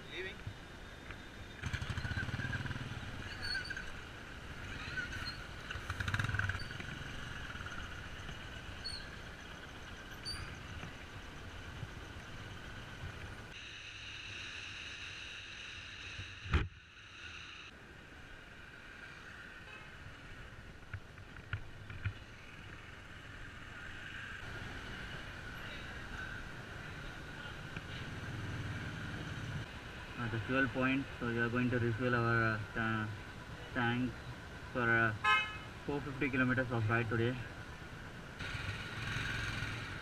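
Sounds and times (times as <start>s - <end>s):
road noise: 0.0s - 40.0s
motorcycle engine: 1.4s - 13.4s, 21.3s - 29.7s, 38.4s - 40.0s.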